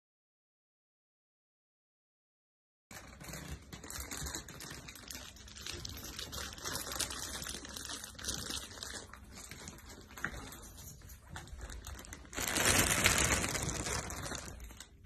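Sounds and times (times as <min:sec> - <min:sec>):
crackling rustle: 0:02.9 - 0:15.0.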